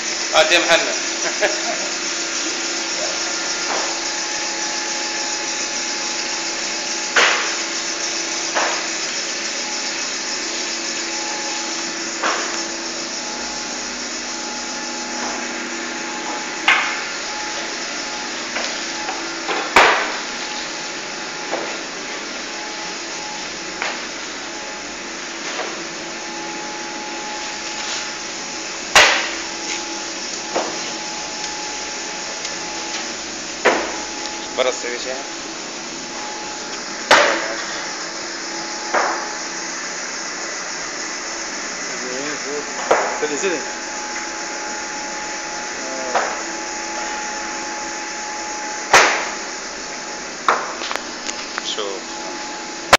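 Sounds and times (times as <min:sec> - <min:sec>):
mill machinery humming: 0:00.0 - 0:52.9
loud sharp bang: 0:48.9 - 0:49.4.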